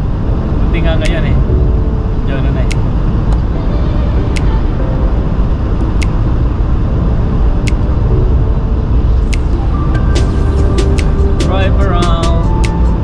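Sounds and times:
car cabin road rumble: 0:00.0 - 0:13.0.

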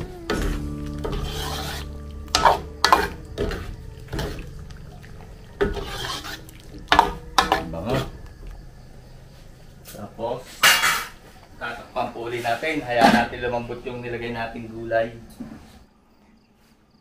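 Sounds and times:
utensil scraping pot: 0:00.0 - 0:08.6, 0:09.3 - 0:11.7
low hum: 0:00.0 - 0:12.0.

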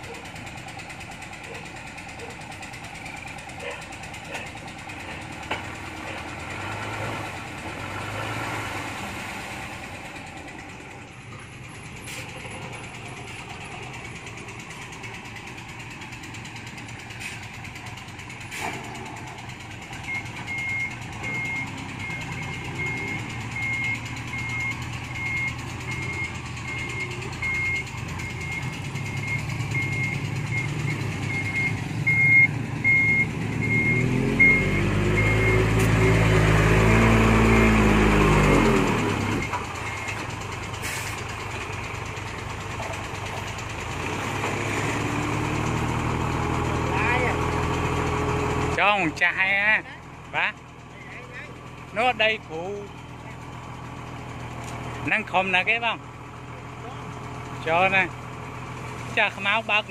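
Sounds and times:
diesel truck engine running: 0:00.0 - 0:59.9
engine revving: 0:03.5 - 0:10.8, 0:18.3 - 0:49.5
truck backup alarm beeping: 0:10.6 - 0:56.0.

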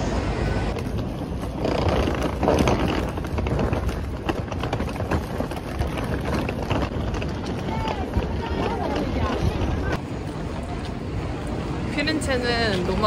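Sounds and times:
busy street rumble: 0:00.0 - 0:13.0
suitcase wheels clattering on stone: 0:00.7 - 0:10.0.

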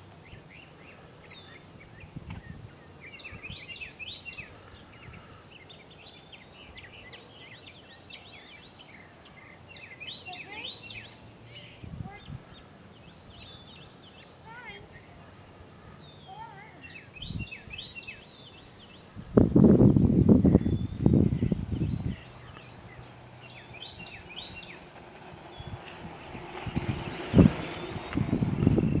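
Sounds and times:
birds chirping and twittering: 0:00.0 - 0:29.0
low rumbles: 0:25.1 - 0:29.0.

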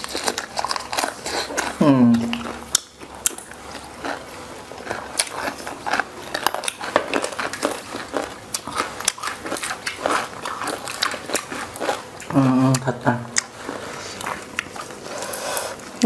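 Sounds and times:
crunching fried fish: 0:00.0 - 0:12.4.

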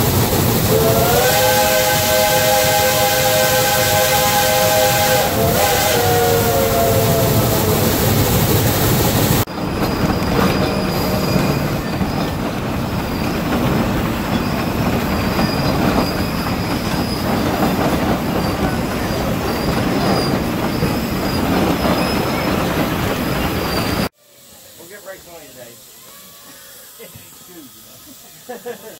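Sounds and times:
steady rush of locomotive: 0:00.0 - 0:26.0
train wheels grinding on rails: 0:00.0 - 0:28.8
high squeal of wheel flanges: 0:09.7 - 0:13.6, 0:14.2 - 0:24.1.

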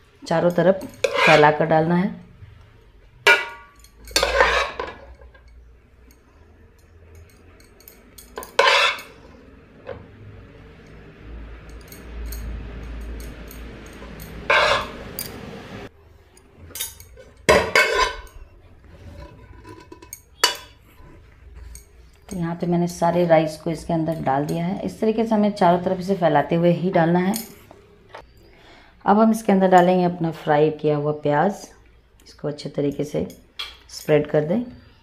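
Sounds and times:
spoon scraping metal pot: 0:00.8 - 0:01.7, 0:03.3 - 0:05.6, 0:07.2 - 0:10.0, 0:13.0 - 0:15.4, 0:16.7 - 0:24.7.

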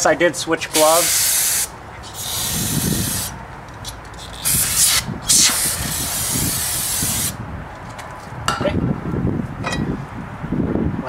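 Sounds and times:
aerosol spray hissing: 0:00.8 - 0:03.3, 0:04.4 - 0:07.4.

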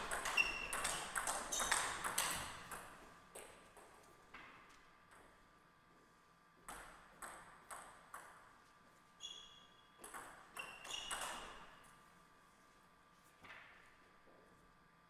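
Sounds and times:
table tennis ball clicks: 0:00.0 - 0:03.6, 0:10.0 - 0:11.6.

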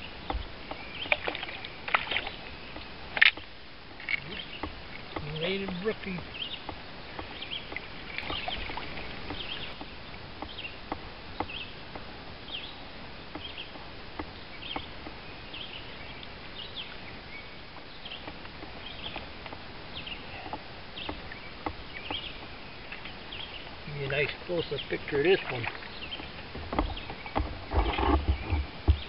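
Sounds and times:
steady hiss: 0:00.0 - 0:27.7.

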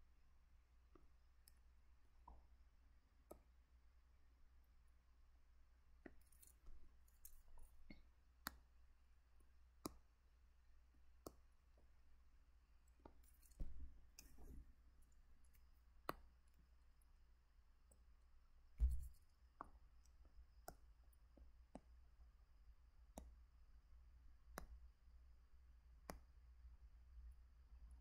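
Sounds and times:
faint input clicks and taps: 0:09.8 - 0:10.0, 0:18.8 - 0:22.0, 0:23.1 - 0:23.4, 0:24.5 - 0:24.8, 0:26.0 - 0:26.3.

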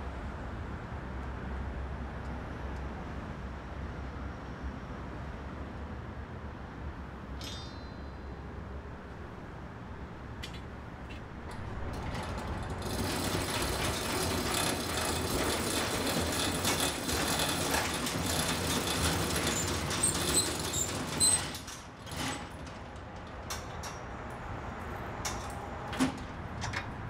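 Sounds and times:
metal shutter rattling down: 0:10.5 - 0:23.8.

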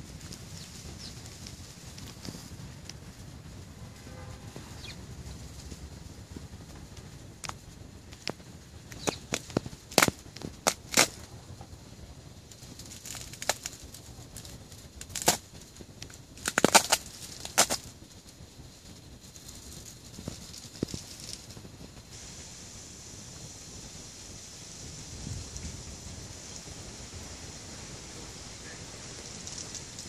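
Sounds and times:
faint steady hiss: 0:00.0 - 0:30.0
ice cracking and falling from branches: 0:09.0 - 0:11.3, 0:12.5 - 0:18.0, 0:29.1 - 0:30.0.

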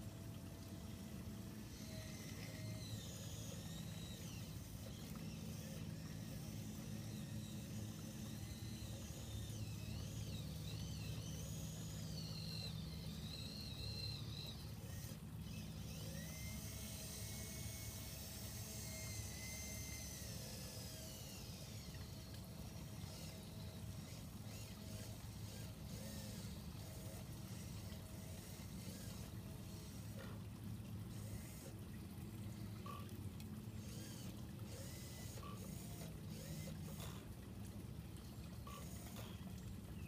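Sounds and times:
low hum: 0:00.0 - 0:40.0
small electric motors whining: 0:00.0 - 0:40.0.

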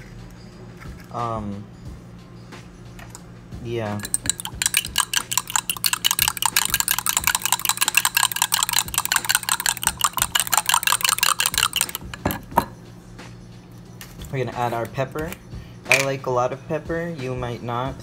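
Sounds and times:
eggs sloshing: 0:04.0 - 0:12.6
fork clicking against cup: 0:04.0 - 0:12.6.

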